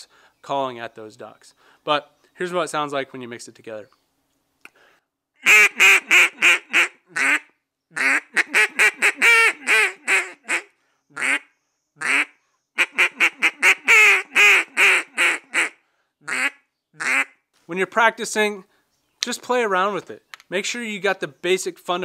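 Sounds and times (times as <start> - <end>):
duck call quacks: 5.4 - 17.4.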